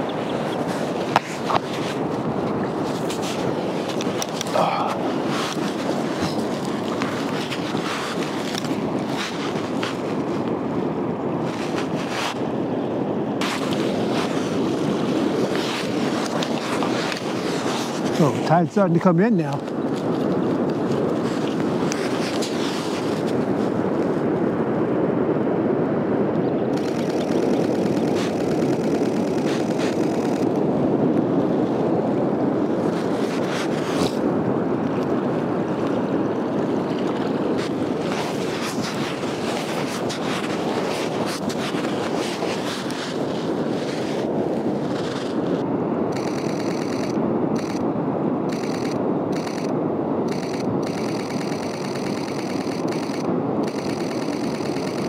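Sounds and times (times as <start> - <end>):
wind noise on microphone: 0.0 - 55.0
breaking surf: 13.4 - 24.2, 26.7 - 47.9, 48.5 - 55.0.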